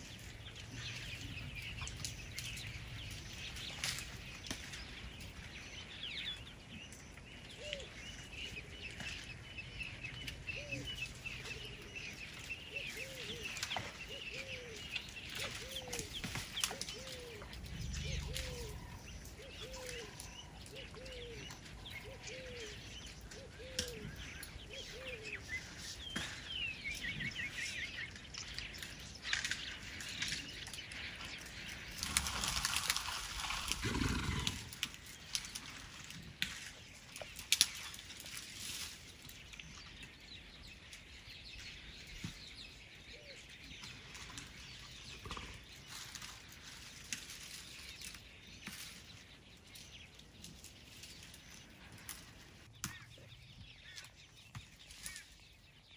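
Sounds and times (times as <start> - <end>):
birds chirping: 0.0 - 55.9
branches rustling and snapping: 0.1 - 5.6, 10.2 - 22.4, 23.2 - 40.2, 43.8 - 55.9
wood cracking: 31.9 - 38.0.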